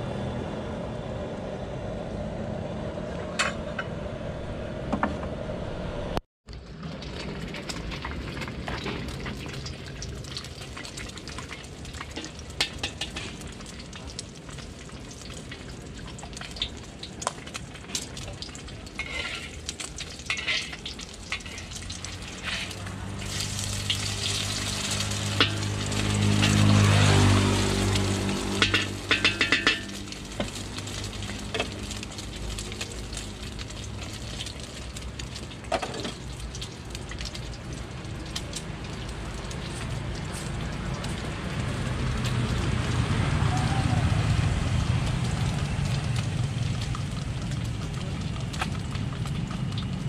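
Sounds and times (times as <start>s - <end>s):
low hum: 0.0s - 6.2s
egg sizzling in oil: 6.8s - 50.0s
metal spatula scraping wok: 18.9s - 32.0s
noodles tossed in wok: 19.0s - 34.5s.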